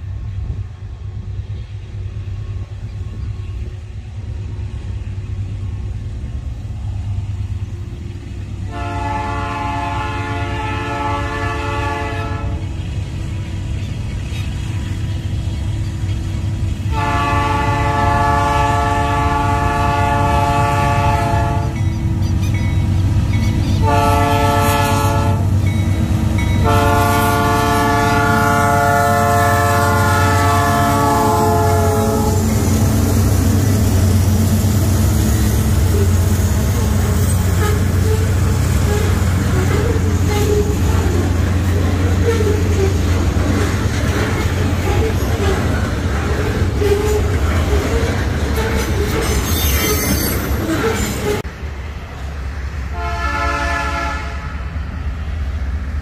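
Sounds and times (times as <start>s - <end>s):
train engine rumble: 0.0s - 56.0s
locomotive air horn: 8.7s - 12.6s, 16.9s - 21.8s, 23.8s - 25.6s, 26.6s - 32.7s, 35.9s - 41.2s, 42.0s - 43.1s, 44.8s - 45.6s, 46.8s - 48.0s, 52.9s - 54.7s.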